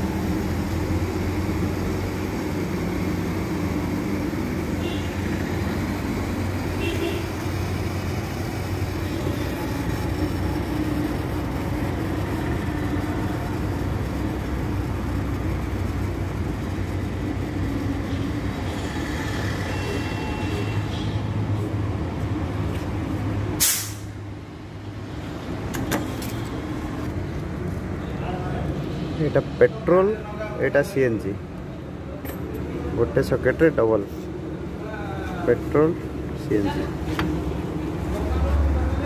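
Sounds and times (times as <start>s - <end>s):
compressed gas hiss: 0.0s - 20.8s, 23.6s - 24.2s
gas filling machinery rumbling: 0.0s - 39.0s.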